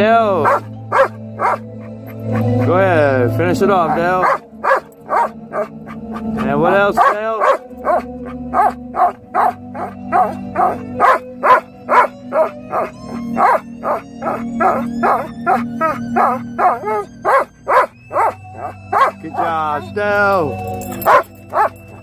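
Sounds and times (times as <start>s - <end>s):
music playing: 0.0s - 22.0s
dog howling: 0.4s - 19.8s, 20.8s - 22.0s.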